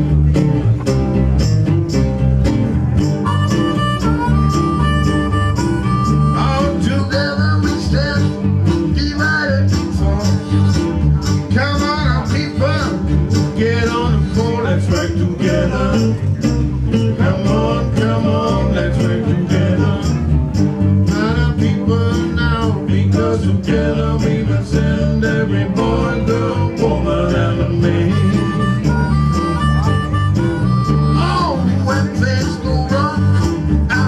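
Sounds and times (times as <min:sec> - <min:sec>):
acoustic guitars strumming: 0:00.0 - 0:34.0
man singing: 0:06.0 - 0:20.4, 0:21.0 - 0:29.4, 0:31.0 - 0:34.0.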